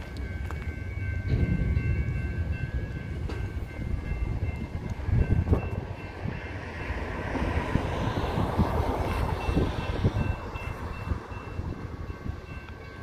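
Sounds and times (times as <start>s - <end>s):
train cars knocking: 0.0s - 7.6s
freight train rumbling past: 0.0s - 13.0s.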